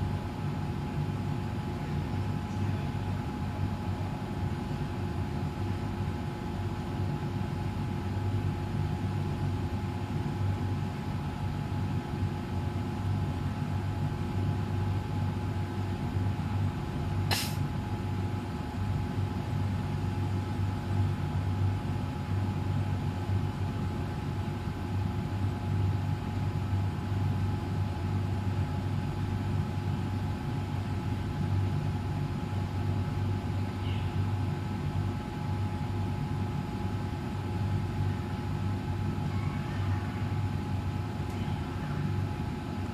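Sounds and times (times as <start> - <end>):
sharp click: 17.3 - 17.6.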